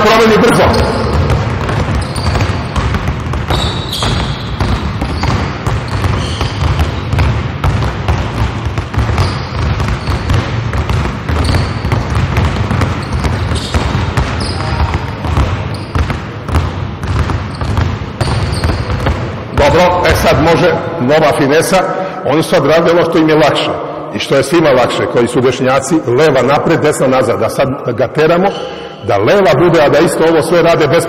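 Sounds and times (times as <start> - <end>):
basketballs bouncing on hardwood: 0.4 - 20.9.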